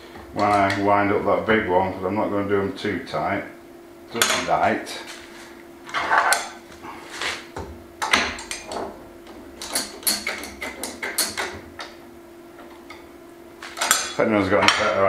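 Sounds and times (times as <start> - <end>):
faint steady hum: 0.0 - 15.0
metal clamps clinking: 13.7 - 14.8.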